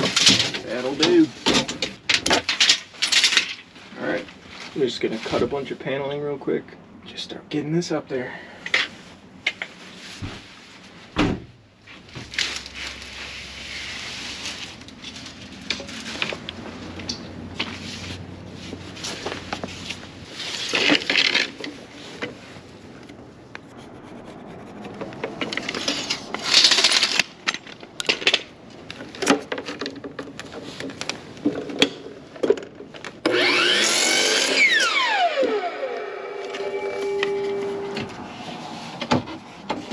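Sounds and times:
sawing wood: 23.6 - 27.0, 33.3 - 38.5
power tool running: 33.2 - 38.0.

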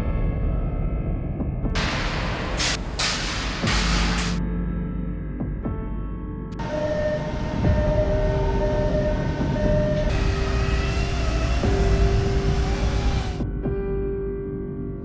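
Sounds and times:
background music: 0.0 - 15.0
industrial machinery rumble and hiss: 1.8 - 4.4, 6.6 - 13.4
machine tone switching on and off: 6.6 - 13.4.

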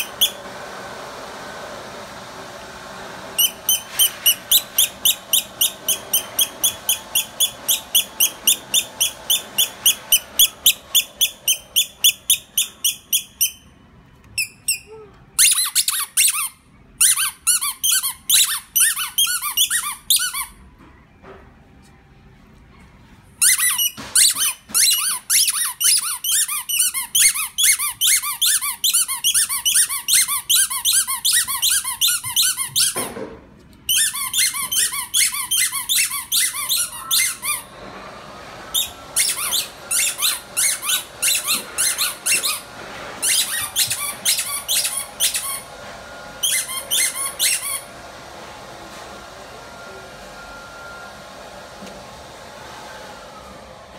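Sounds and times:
squeaky dog toy squeaking: 3.4 - 20.7, 23.4 - 33.1, 33.9 - 37.7, 38.7 - 42.6, 43.2 - 45.7, 46.4 - 47.9.

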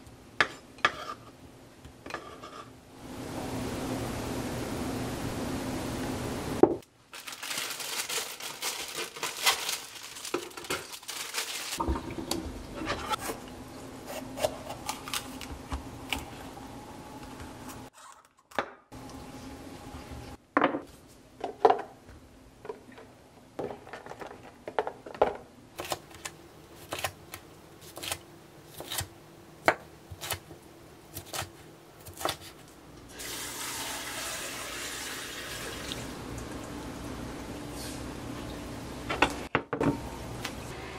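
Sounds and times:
knife slicing crunchy peppers: 25.8 - 30.5, 31.1 - 32.6.

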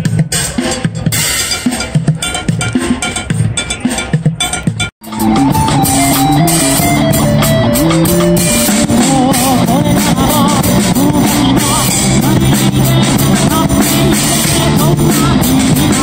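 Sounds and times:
rock band playing live: 4.8 - 16.0
person singing: 5.2 - 16.0.

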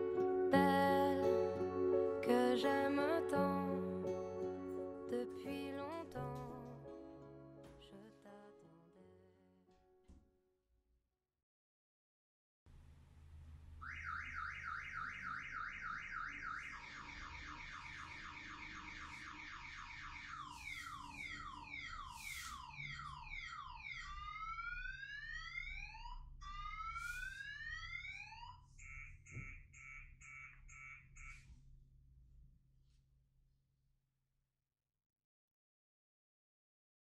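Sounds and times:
electronic alarm siren: 13.8 - 31.5.

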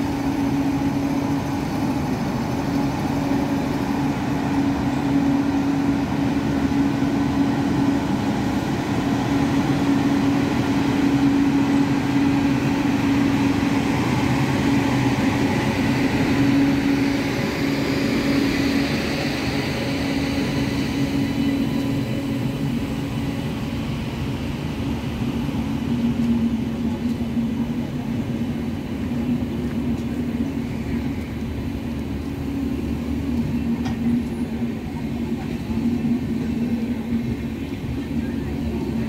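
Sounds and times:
electric locomotive hum: 0.0 - 39.0
wheels rumbling on track: 0.0 - 39.0.

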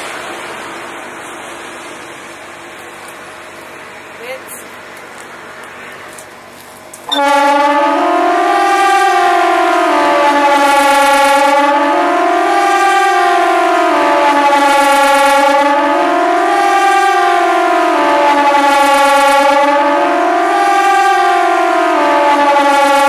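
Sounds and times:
siren wailing: 7.1 - 23.0.

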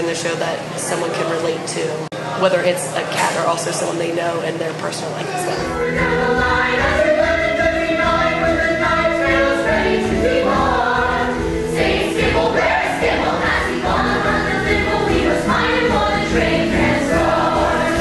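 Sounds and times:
ensemble singing: 5.5 - 18.0.

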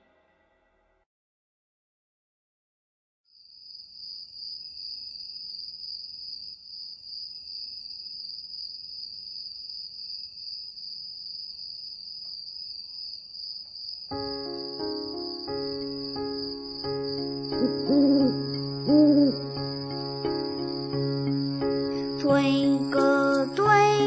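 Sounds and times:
high-pitched insect trill: 9.4 - 24.0.

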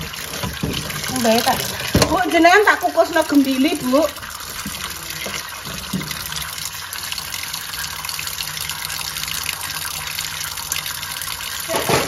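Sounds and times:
tap water running into a pot: 0.0 - 12.0.

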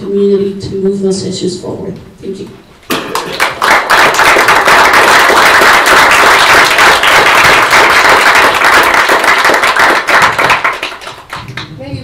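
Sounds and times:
audience applauding: 3.0 - 11.7.

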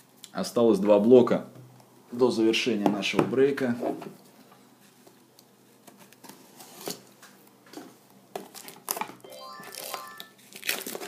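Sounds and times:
faint plastic wrap rustles: 3.6 - 9.2, 10.2 - 11.0.

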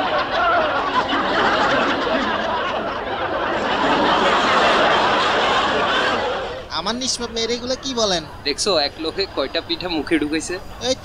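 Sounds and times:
audience laughing: 0.0 - 6.7, 8.8 - 11.0.

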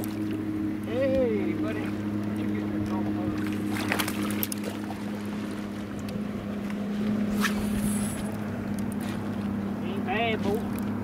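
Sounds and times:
fishing rod cast swish: 7.3 - 8.3.

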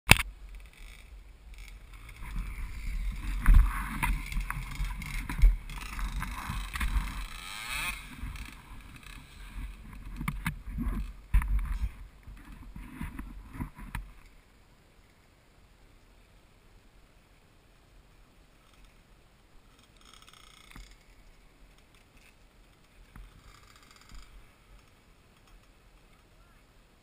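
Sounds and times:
muffled quad engine rumble: 0.2 - 14.1.

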